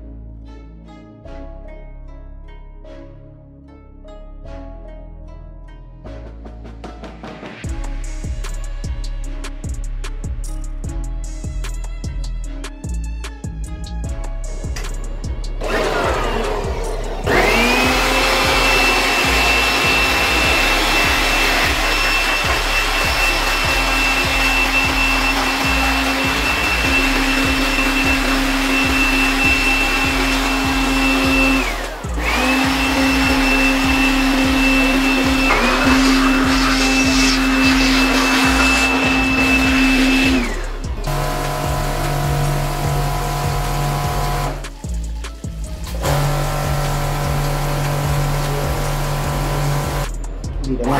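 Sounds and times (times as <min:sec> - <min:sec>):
electric air blower whining: 0:15.6 - 0:44.8, 0:45.9 - 0:50.1.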